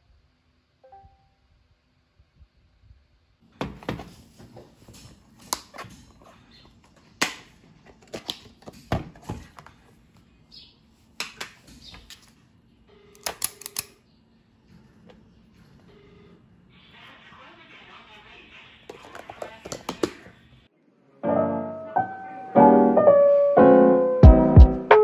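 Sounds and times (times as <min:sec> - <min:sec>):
plastic tub knocking: 0:18.9 - 0:20.3.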